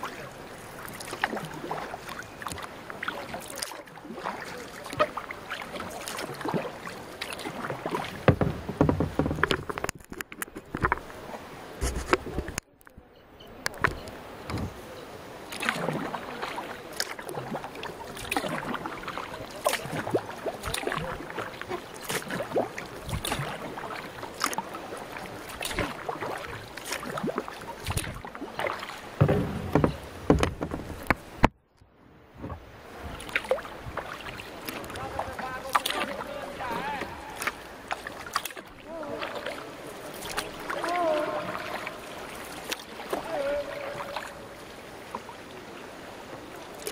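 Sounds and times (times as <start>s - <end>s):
paddles splashing in water: 0.0s - 31.6s, 32.2s - 46.9s
water sloshing against boat: 0.0s - 46.9s.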